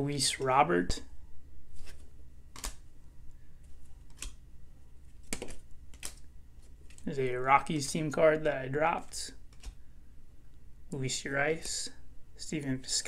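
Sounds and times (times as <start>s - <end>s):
cards flicking: 1.8s - 2.8s, 5.2s - 7.1s.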